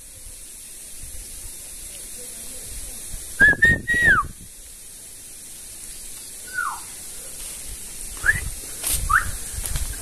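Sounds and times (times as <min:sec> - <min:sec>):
person whistling: 0:03.4 - 0:04.3, 0:08.2 - 0:08.5.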